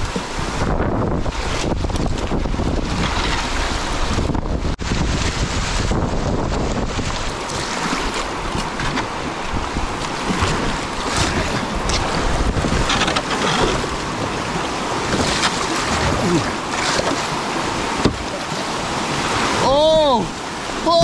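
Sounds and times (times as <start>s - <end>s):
paddle splashes: 0.0s - 21.0s
wind buffeting microphone: 0.0s - 21.0s
river rapids rushing: 7.2s - 21.0s.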